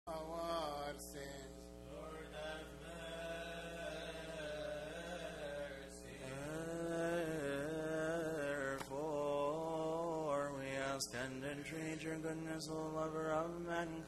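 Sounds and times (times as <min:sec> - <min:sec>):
man chanting: 0:00.1 - 0:14.0.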